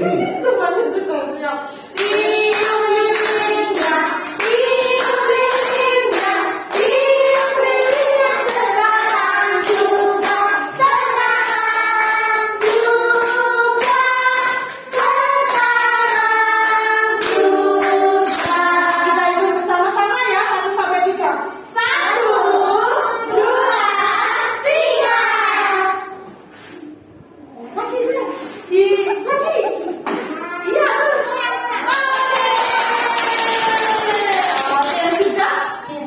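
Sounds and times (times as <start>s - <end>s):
people clapping along: 1.9s - 19.2s, 31.9s - 36.0s
children and woman singing: 2.0s - 21.0s, 21.6s - 26.4s.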